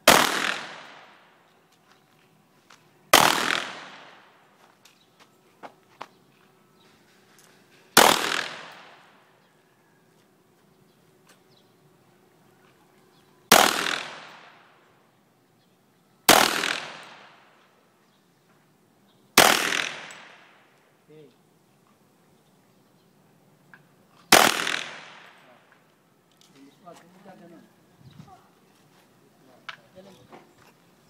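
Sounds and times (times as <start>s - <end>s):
handgun shots with echo: 0.0s - 1.2s, 3.2s - 4.4s, 8.0s - 9.2s, 13.5s - 14.7s, 16.3s - 17.5s, 19.4s - 20.6s, 24.3s - 25.5s.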